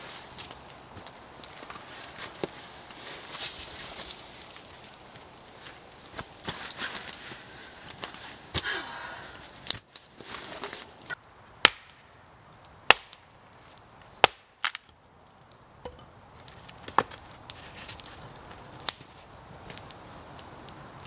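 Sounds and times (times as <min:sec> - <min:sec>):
axe chopping firewood: 0:11.6 - 0:12.0, 0:12.9 - 0:13.2, 0:14.2 - 0:14.9.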